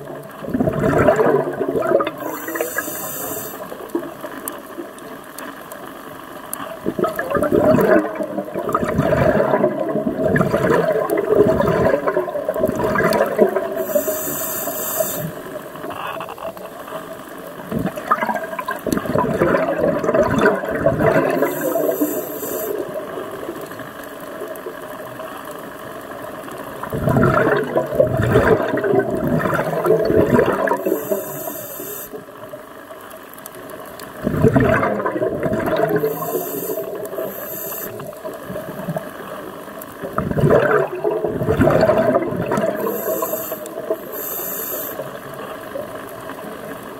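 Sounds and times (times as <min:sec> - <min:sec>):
bubbling exhalations underwater: 0:00.0 - 0:04.1, 0:06.8 - 0:14.3, 0:17.6 - 0:23.5, 0:26.8 - 0:31.6, 0:34.1 - 0:39.1, 0:40.0 - 0:44.3
regulator inhalation hiss: 0:02.2 - 0:03.8, 0:13.8 - 0:15.7, 0:21.3 - 0:22.9, 0:30.8 - 0:32.2, 0:36.0 - 0:38.2, 0:42.7 - 0:45.2.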